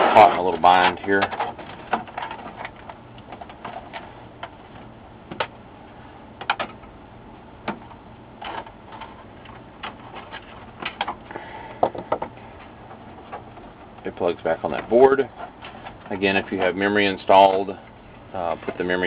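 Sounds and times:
clicks and knocks on plastic case: 0:11.8 - 0:12.4.

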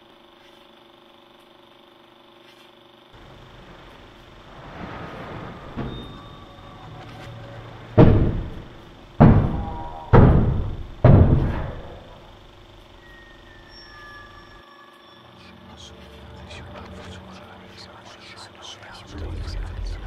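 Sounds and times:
fist pounding on wooden door: 0:07.9 - 0:12.3.

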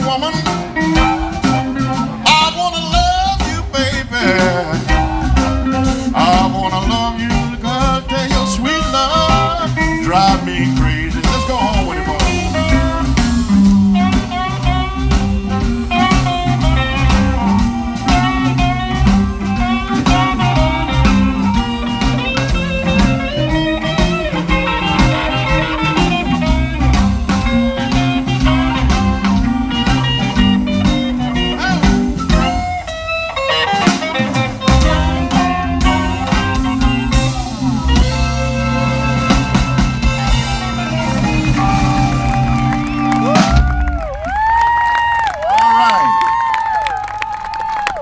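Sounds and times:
electric guitar lead bending notes: 0:00.0 - 0:44.2
drum kit: 0:00.0 - 0:46.6
bass: 0:00.0 - 0:48.0.

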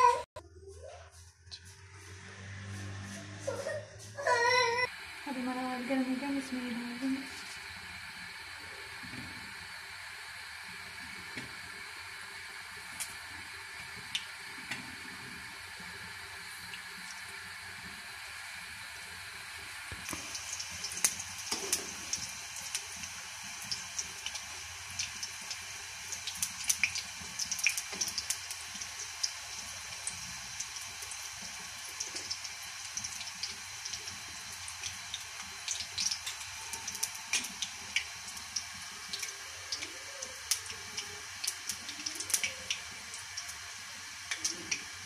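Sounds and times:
food frying in hot oil: 0:04.9 - 0:45.0.

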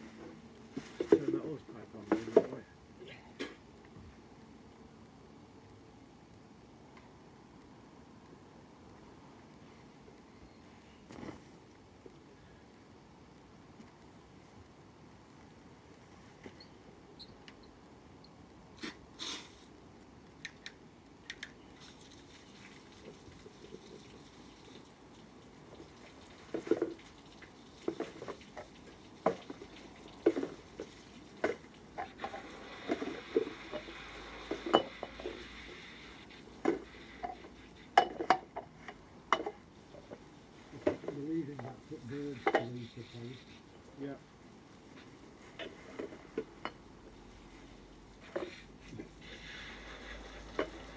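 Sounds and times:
running water hiss: 0:18.8 - 0:19.8, 0:21.6 - 0:50.9
hose water splashing into pool: 0:21.8 - 0:38.0, 0:47.5 - 0:50.9.

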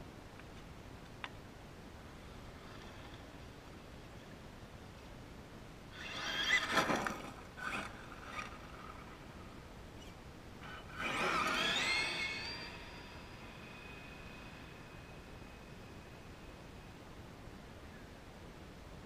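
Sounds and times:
rc truck motor whining: 0:05.9 - 0:16.9.

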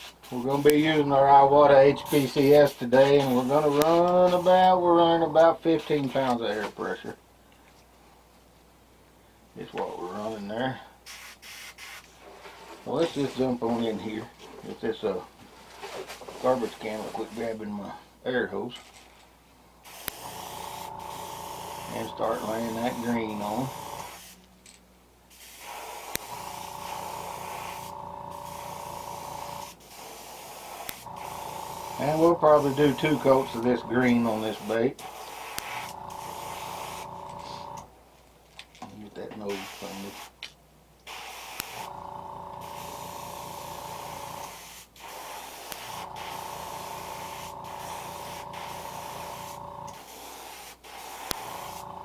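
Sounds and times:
airbrush spraying hiss: 0:00.0 - 0:01.1, 0:01.9 - 0:04.6, 0:11.0 - 0:12.1, 0:19.8 - 0:24.5, 0:25.3 - 0:37.8, 0:39.5 - 0:40.4, 0:41.0 - 0:41.9, 0:42.5 - 0:52.0
faint airbrush whine: 0:00.0 - 0:04.9, 0:19.8 - 0:24.5, 0:25.3 - 0:37.9, 0:39.4 - 0:40.4, 0:41.1 - 0:52.0.

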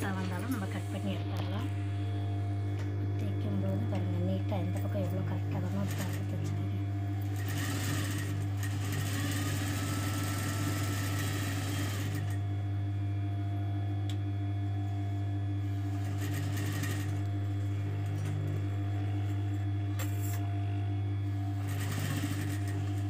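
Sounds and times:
low hum: 0:00.0 - 0:05.3
sewing machine stitching: 0:05.5 - 0:06.6, 0:07.2 - 0:12.4, 0:15.8 - 0:20.4, 0:21.4 - 0:23.0.

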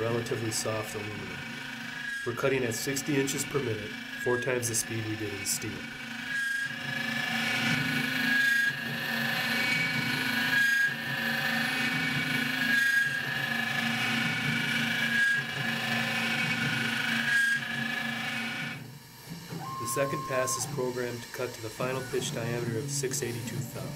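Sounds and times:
milling machine whine: 0:00.0 - 0:23.9.

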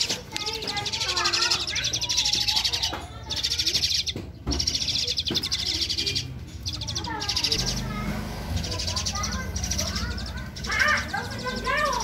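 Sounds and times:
starling chattering trills: 0:00.0 - 0:12.0.

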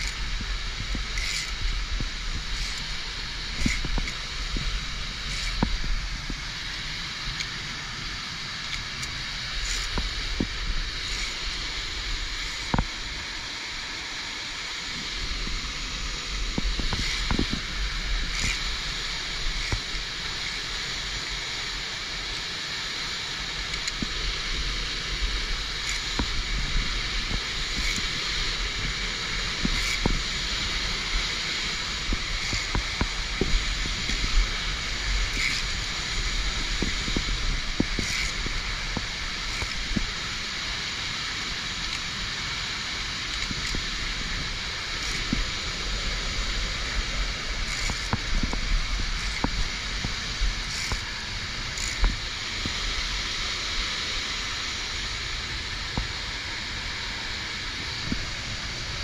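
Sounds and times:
carabiners clicking on steel cable: 0:00.0 - 0:07.7, 0:08.6 - 0:13.0, 0:16.6 - 0:21.4, 0:23.4 - 0:24.5, 0:25.2 - 0:45.7, 0:47.6 - 0:52.8
waterfall rushing: 0:00.0 - 0:59.0.

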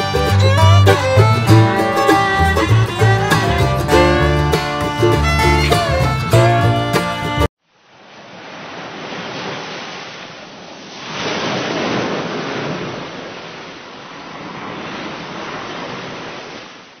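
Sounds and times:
ocean waves washing: 0:00.0 - 0:17.0.

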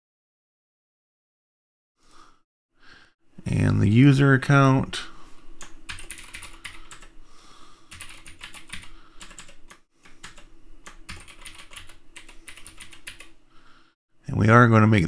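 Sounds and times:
computer keyboard typing: 0:05.6 - 0:07.1, 0:07.9 - 0:13.4.

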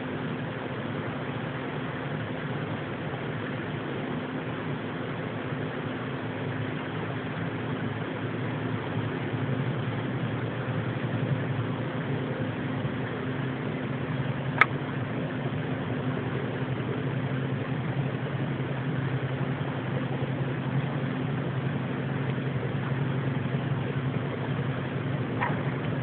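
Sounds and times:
low droning hum: 0:00.0 - 0:26.0
sharp click: 0:14.6 - 0:14.8.

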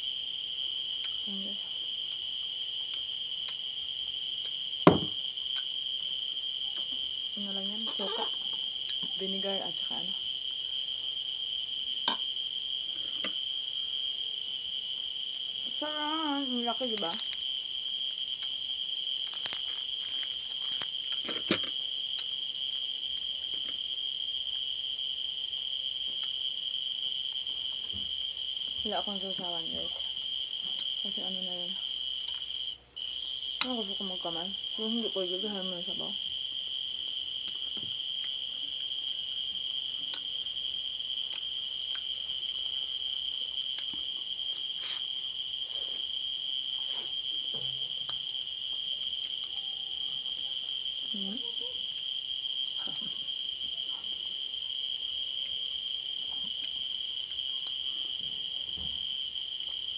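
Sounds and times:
cricket trilling: 0:00.0 - 0:59.9
dried fish snapping apart: 0:19.0 - 0:23.3.

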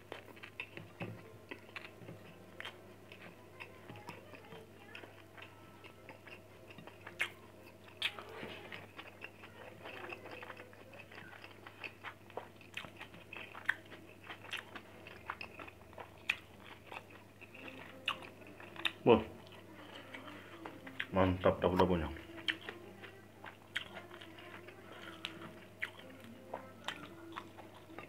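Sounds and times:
person chewing food: 0:00.0 - 0:28.0.

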